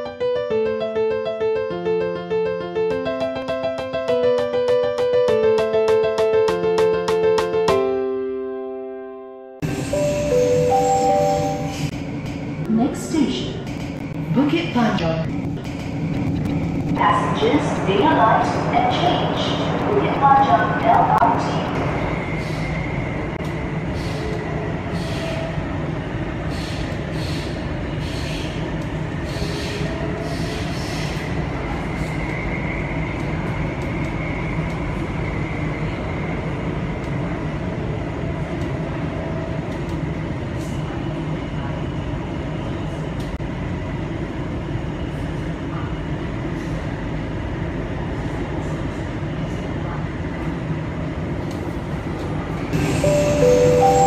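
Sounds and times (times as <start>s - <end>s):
train wheels rumbling: 9.6s - 49.7s.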